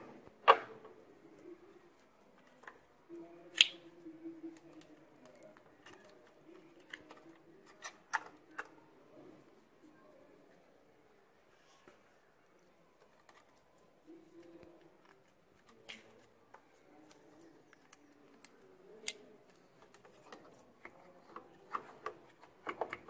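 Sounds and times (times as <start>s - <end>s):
plastic connectors clicking: 15.0s - 23.0s.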